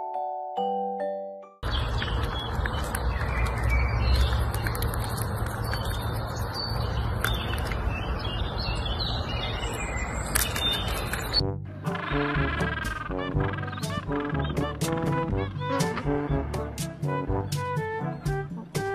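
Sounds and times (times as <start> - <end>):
small birds chirping: 1.6 - 11.5, 12.1 - 16.7.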